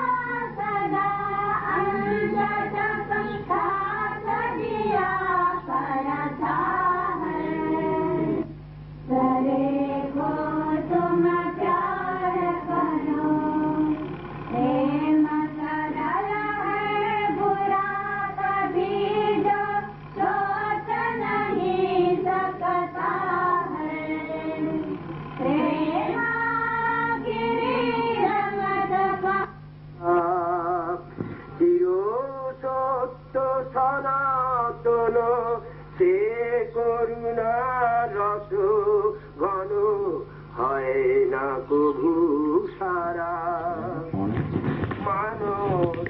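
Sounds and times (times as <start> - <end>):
women singing together: 0.0 - 8.5, 9.1 - 30.3
low hum: 0.0 - 46.0.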